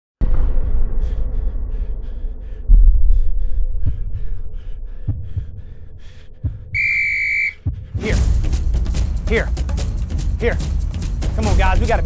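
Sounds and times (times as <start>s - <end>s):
deep rumble: 0.2s - 12.0s
heavy heartbeat thumps: 0.2s - 12.0s
whistle blast: 6.8s - 7.6s.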